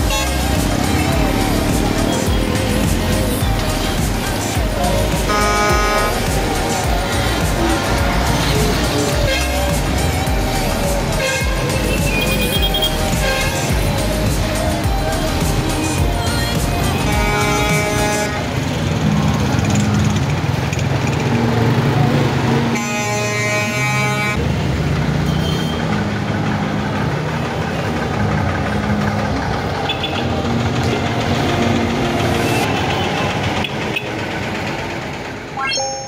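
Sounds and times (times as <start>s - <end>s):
vehicle horn: 0.0s - 0.6s, 5.2s - 6.3s, 9.2s - 9.8s, 11.2s - 13.7s, 17.0s - 18.6s, 22.7s - 24.4s
vehicle engines passing: 0.0s - 22.8s, 23.7s - 35.6s.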